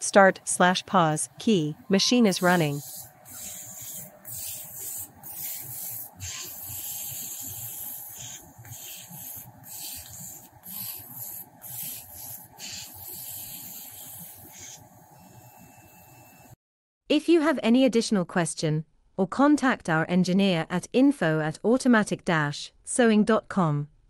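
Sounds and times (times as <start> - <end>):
cutting machine hissing: 0.6 - 16.6.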